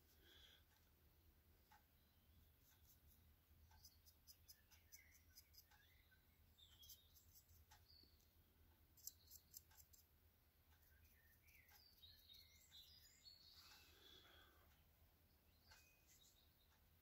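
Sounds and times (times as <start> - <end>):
faint high chirps: 3.7 - 10.0, 10.8 - 17.0
faint ticks: 6.6 - 10.1.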